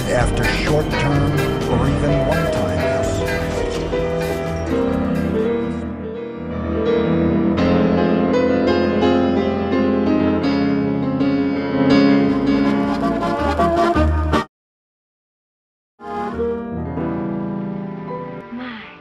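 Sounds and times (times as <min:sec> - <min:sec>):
instrumental music held chords: 0:00.0 - 0:14.4.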